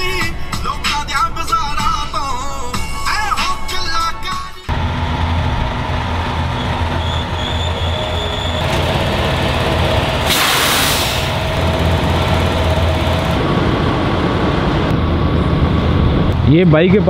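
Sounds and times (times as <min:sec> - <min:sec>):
diesel truck engine rumbling: 0:04.7 - 0:17.0
air brakes hiss: 0:10.2 - 0:11.4.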